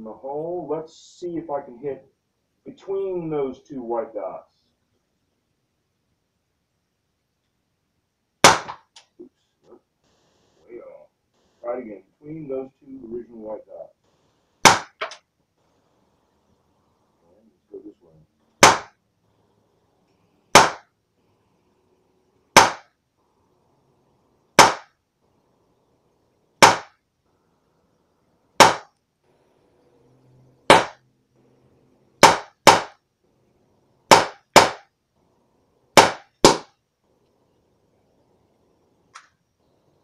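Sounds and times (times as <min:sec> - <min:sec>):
bb gun shots: 0:08.4 - 0:08.9, 0:14.6 - 0:15.2, 0:18.6 - 0:19.0, 0:20.5 - 0:20.9, 0:22.5 - 0:22.9, 0:24.6 - 0:25.0, 0:26.6 - 0:27.0, 0:28.6 - 0:29.0, 0:30.7 - 0:31.0, 0:32.2 - 0:33.0, 0:34.1 - 0:34.9, 0:36.0 - 0:36.7.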